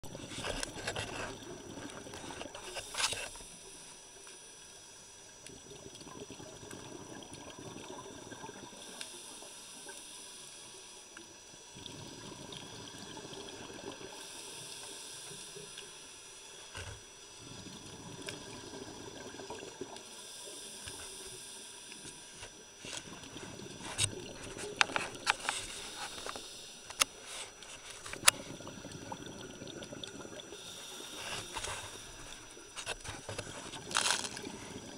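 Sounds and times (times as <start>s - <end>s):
exhaled bubbles rumbling: 0.0s - 2.6s, 5.5s - 8.8s, 17.4s - 20.0s, 23.0s - 25.3s, 28.1s - 31.0s, 31.7s - 34.9s
regulator inhalation hiss: 8.8s - 11.0s, 14.1s - 17.4s, 20.0s - 23.0s, 23.8s - 28.5s, 30.5s - 34.9s.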